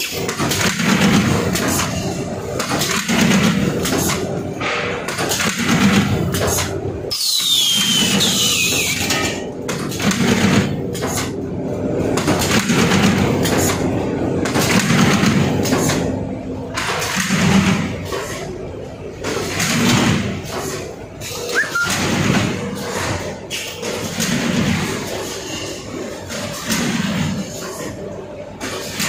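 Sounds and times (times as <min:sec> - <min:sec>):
folder-gluer machine hum and rattling: 0:00.0 - 0:29.0
brief falling squeals: 0:21.5 - 0:22.0.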